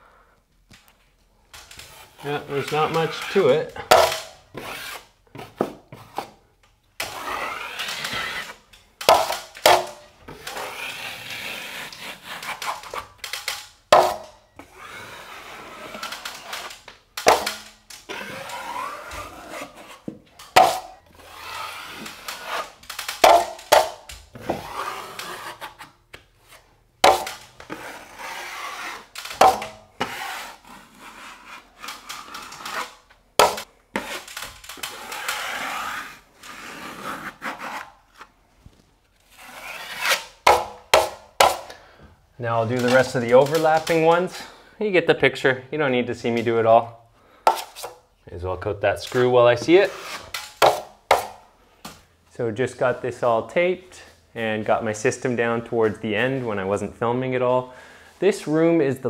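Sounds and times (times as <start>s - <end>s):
taping knife scraping compound: 1.6s - 6.4s, 7.0s - 38.4s, 39.2s - 41.8s, 47.3s - 48.1s, 49.0s - 51.4s.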